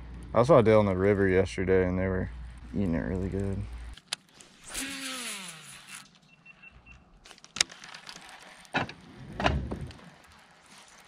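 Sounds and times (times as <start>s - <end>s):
fishing reel spool whirring: 3.6s - 6.7s.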